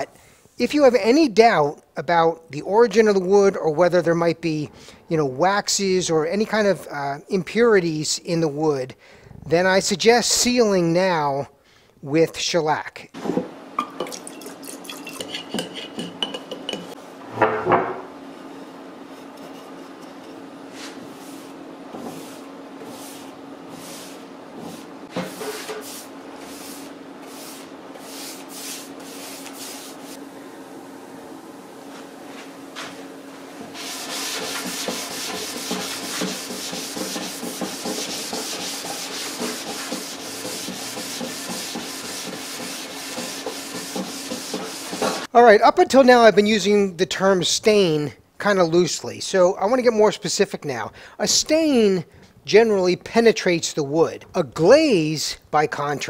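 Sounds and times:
glass jar and metal cans clinking: 13.8 - 16.9
faint steady hum: 13.8 - 34.4
abrasive pad scrubbing wood: 19.1 - 30.2, 33.6 - 45.3.

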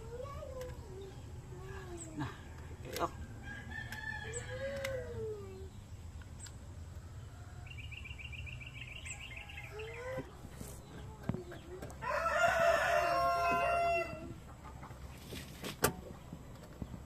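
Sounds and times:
rooster crowing: 3.4 - 5.0, 12.0 - 14.3.

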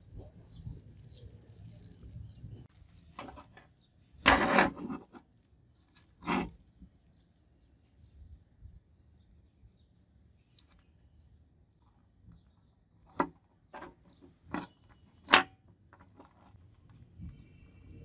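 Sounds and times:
metal padlock parts clicking on table: 4.2 - 5.2, 13.1 - 16.4.

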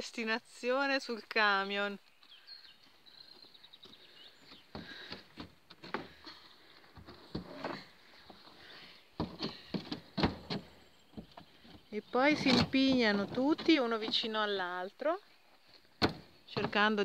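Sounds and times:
wooden frames knocking: 12.2 - 14.4, 16.0 - 17.0.

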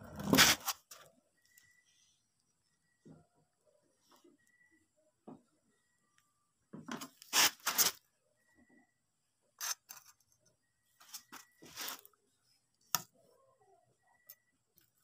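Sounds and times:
rough scraping and rubbing: 0.0 - 1.0, 7.3 - 8.0.

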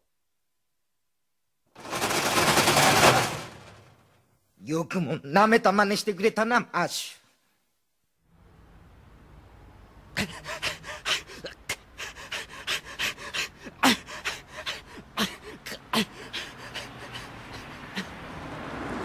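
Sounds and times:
men panting and gasping: 10.1 - 18.5
men grunting: 10.2 - 18.3.

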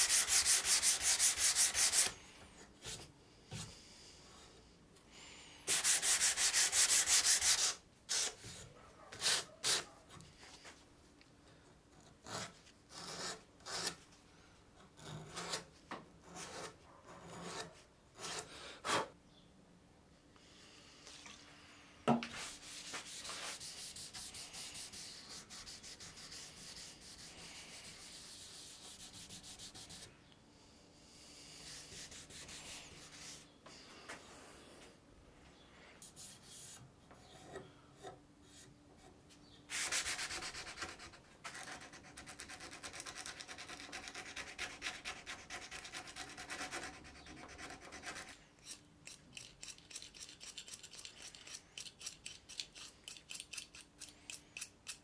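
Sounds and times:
sandpaper rubbing wood: 0.0 - 2.1, 5.7 - 8.4, 22.3 - 30.1, 31.6 - 33.4, 39.7 - 48.4.

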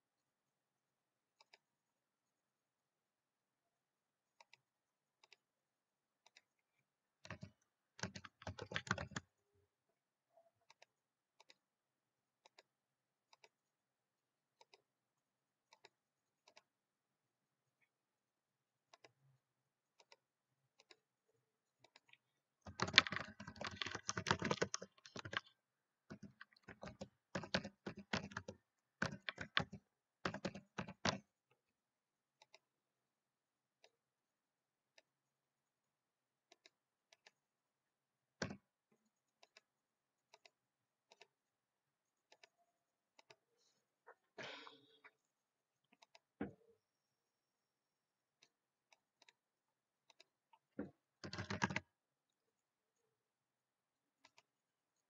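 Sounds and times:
keyboard typing: 7.2 - 9.3, 21.8 - 31.3, 38.4 - 38.6, 51.2 - 51.9.

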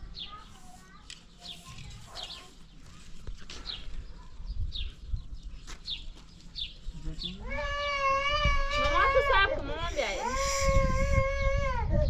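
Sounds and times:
small bird chirping: 0.0 - 7.5.

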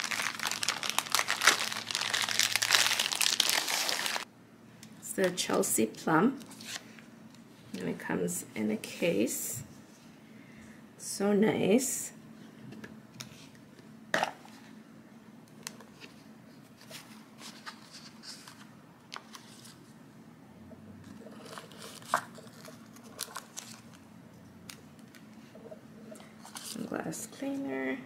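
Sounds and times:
paper and plastic crinkling: 0.0 - 4.3, 16.8 - 19.8, 21.3 - 24.0.

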